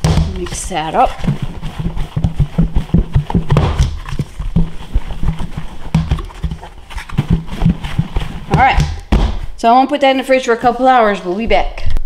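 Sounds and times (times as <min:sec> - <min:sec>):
chicken thudding in plastic shaker: 0:00.0 - 0:09.5.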